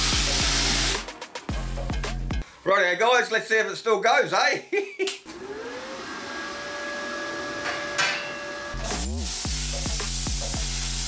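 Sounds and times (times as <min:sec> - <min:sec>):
air compressor whining: 0:05.3 - 0:09.0
plasma arc cutting steel: 0:07.6 - 0:11.0.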